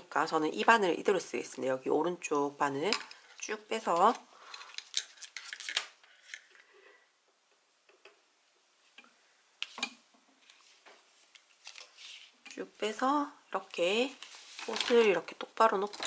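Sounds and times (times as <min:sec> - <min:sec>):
fabric rustling: 0:13.8 - 0:15.3.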